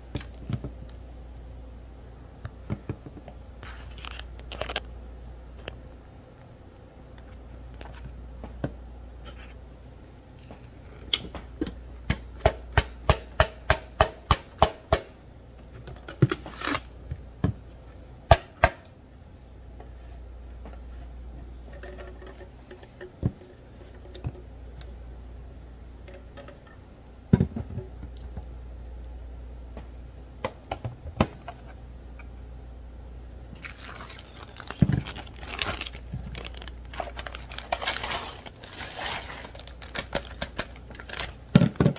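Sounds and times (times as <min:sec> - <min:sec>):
crushed ice pouring: 0:33.6 - 0:41.4.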